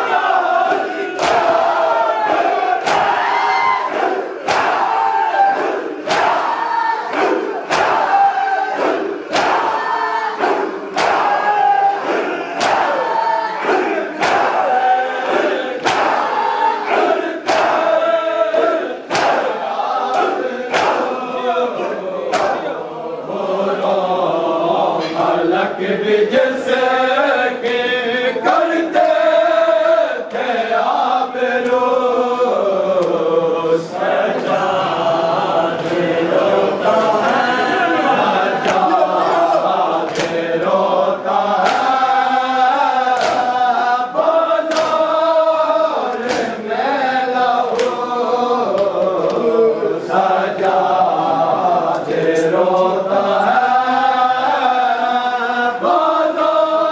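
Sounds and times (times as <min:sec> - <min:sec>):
men chanting together: 0:00.0 - 0:56.9
hands slapping chests: 0:00.7 - 0:14.6, 0:15.3 - 0:16.4, 0:17.0 - 0:17.9, 0:18.5 - 0:21.2, 0:22.3 - 0:22.7, 0:32.9 - 0:33.2, 0:38.6 - 0:39.0, 0:40.0 - 0:40.7, 0:41.5 - 0:42.2, 0:43.1 - 0:43.7, 0:44.7 - 0:45.2, 0:46.0 - 0:46.6, 0:47.7 - 0:48.1, 0:48.7 - 0:49.5.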